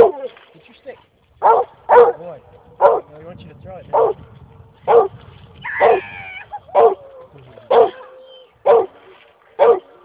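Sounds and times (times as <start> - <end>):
dog barking: 1.4 - 2.2, 2.8 - 3.1, 3.9 - 4.2, 4.9 - 5.1, 5.8 - 6.0, 6.7 - 7.0, 7.7 - 9.0, 9.6 - 10.0.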